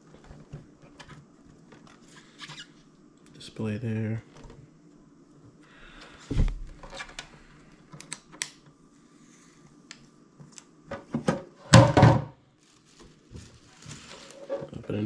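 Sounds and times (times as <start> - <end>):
plastic lid knocks and clatter: 10.9 - 12.3.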